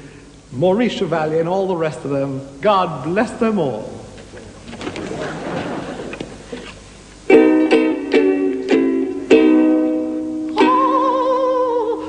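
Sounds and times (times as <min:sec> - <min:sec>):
ukulele strumming chords: 0:07.2 - 0:12.0.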